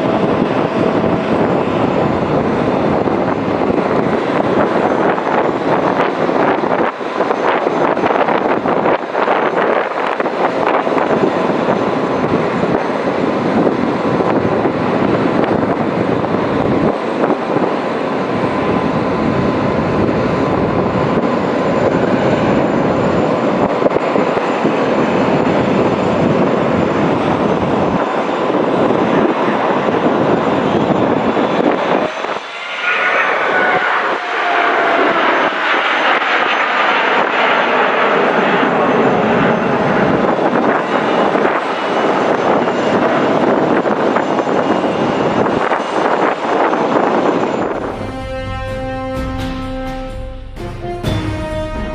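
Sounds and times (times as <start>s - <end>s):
jet airliner flying overhead: 0.0s - 51.9s.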